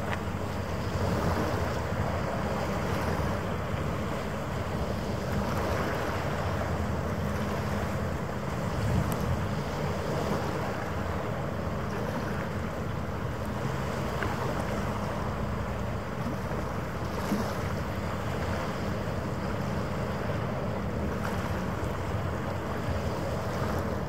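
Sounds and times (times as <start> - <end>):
wind noise on microphone: 8.4 - 12.4.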